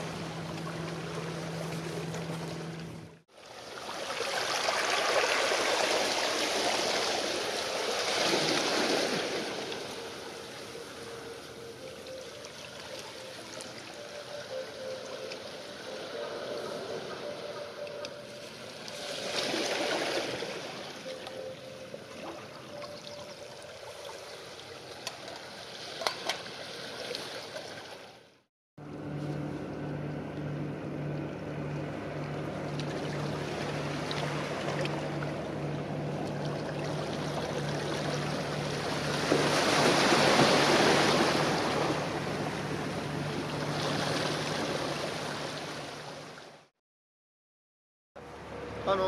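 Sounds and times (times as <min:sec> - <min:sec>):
boat engine droning: 0:00.0 - 0:25.6, 0:28.8 - 0:46.7, 0:48.2 - 0:49.0
water lapping along shore: 0:00.0 - 0:28.4, 0:29.2 - 0:46.7
wave washing in: 0:03.6 - 0:11.8, 0:36.4 - 0:45.9.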